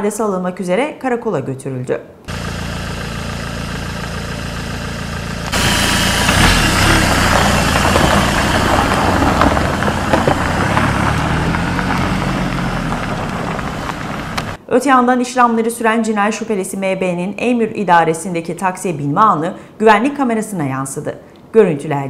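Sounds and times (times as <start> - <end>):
vehicle engine running: 2.3 - 14.6
rushing hiss: 5.5 - 11.1.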